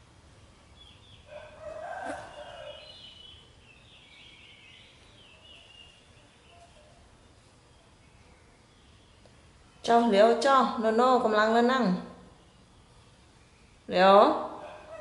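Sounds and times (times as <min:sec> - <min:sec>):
animal call: 0:01.3 - 0:03.2.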